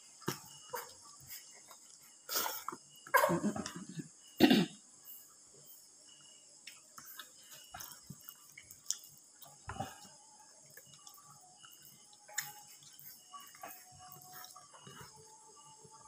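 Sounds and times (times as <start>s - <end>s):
chewing: 6.6s - 15.6s.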